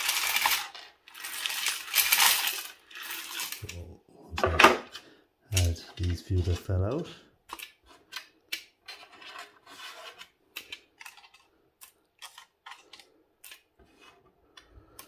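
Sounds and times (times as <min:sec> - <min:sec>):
computer chips clicking and rattling: 0:00.0 - 0:03.8
chips rubbing on scale: 0:00.0 - 0:03.9, 0:07.9 - 0:11.6.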